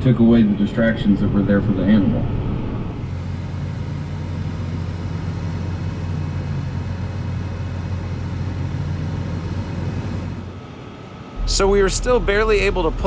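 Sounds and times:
tractor diesel engine running: 3.0s - 13.0s.

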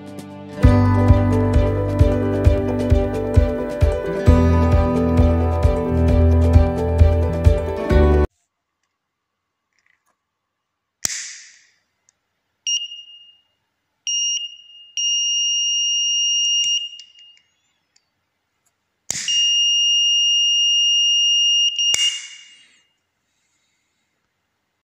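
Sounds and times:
piezo buzzer alarm beeps: 12.7s - 13.5s, 14.1s - 17.6s, 19.3s - 22.3s.

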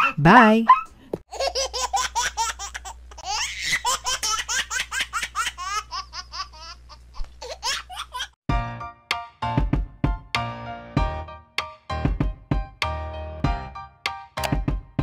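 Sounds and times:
young child laughing: 1.3s - 8.4s.

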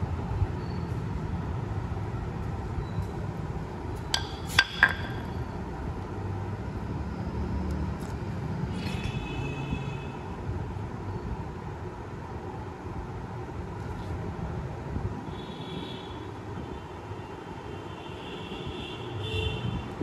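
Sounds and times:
metal cover clinking on concrete: 4.1s - 5.4s.

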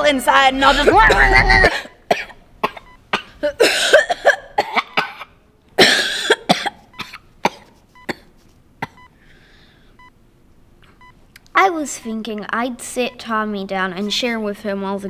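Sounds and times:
person coughing: 0.6s - 9.0s.

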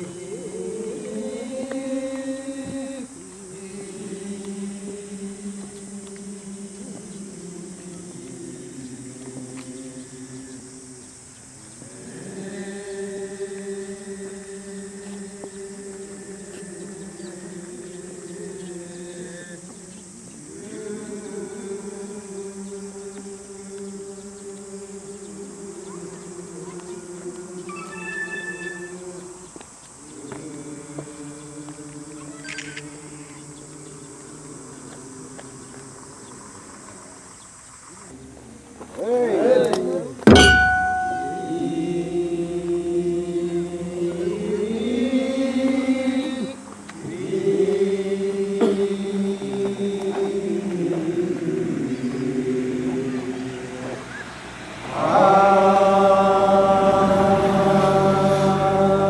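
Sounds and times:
men's chorus chanting a hymn: 0.0s - 59.0s.

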